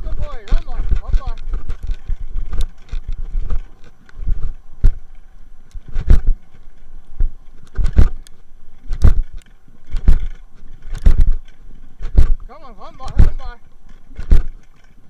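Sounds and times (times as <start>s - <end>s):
bicycle on rough dirt track: 0.0s - 15.0s
bike thumps and rattles: 5.8s - 6.4s, 7.7s - 8.2s, 8.9s - 13.4s, 14.2s - 14.6s.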